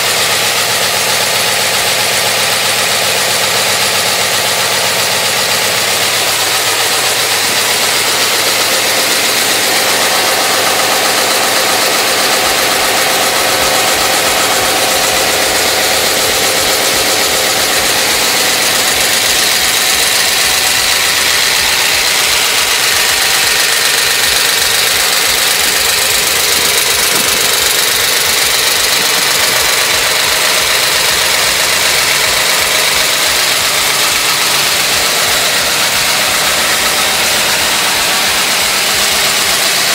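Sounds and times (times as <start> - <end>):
vee eight engine idling: 0.0 - 39.9.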